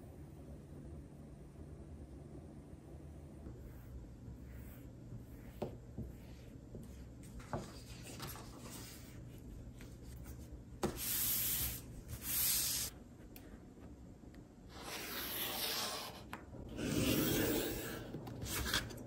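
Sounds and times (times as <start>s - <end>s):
palms swishing over paper: 3.6s - 12.9s.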